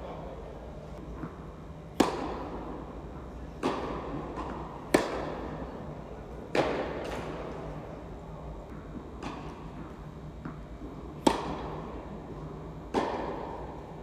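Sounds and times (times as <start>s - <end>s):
tennis ball hits echoing: 1.9s - 2.6s, 3.6s - 5.4s, 6.5s - 7.4s, 11.2s - 11.8s, 12.9s - 13.7s.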